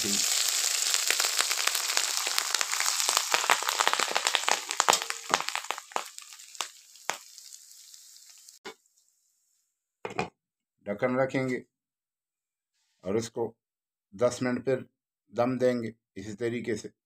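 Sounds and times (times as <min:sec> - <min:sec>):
ghee and onions sizzling: 0:00.0 - 0:09.3.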